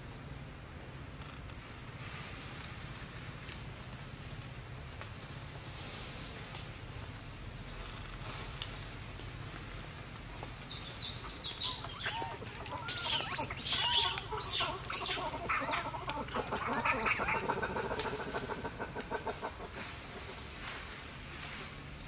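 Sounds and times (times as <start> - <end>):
animal chirps and squeals: 10.7 - 19.9
quick pulsing animal calls: 10.8 - 19.9.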